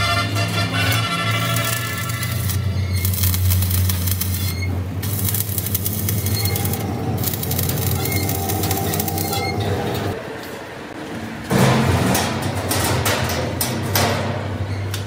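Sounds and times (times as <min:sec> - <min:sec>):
welding arc crackling sizzle: 0:00.0 - 0:10.2.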